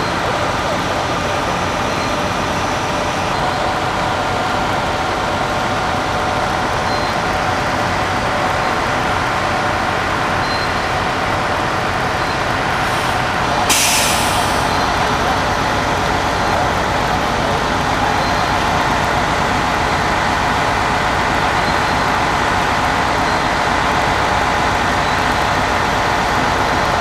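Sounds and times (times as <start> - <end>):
diesel engine running: 0.0 - 27.0
air brake hiss: 12.8 - 14.8.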